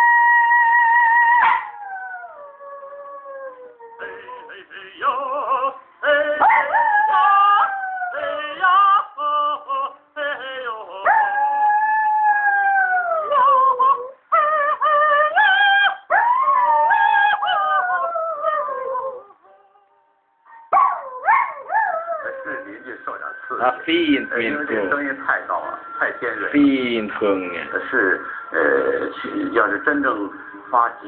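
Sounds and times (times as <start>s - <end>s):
dog howling: 0.0s - 22.9s
music: 4.0s - 7.6s, 22.3s - 31.0s.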